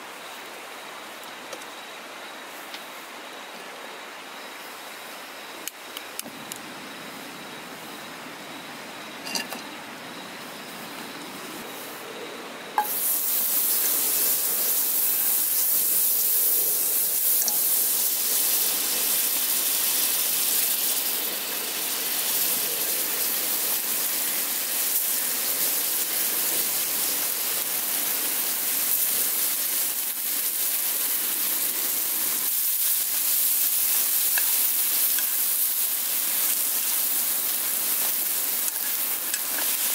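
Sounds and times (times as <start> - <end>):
butter sizzling in pan: 12.8 - 39.9.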